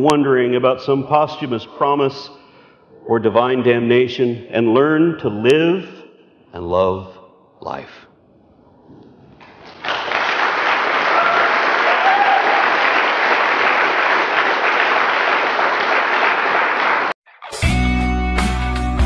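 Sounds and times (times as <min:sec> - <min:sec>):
audience applauding: 0:09.4 - 0:17.2.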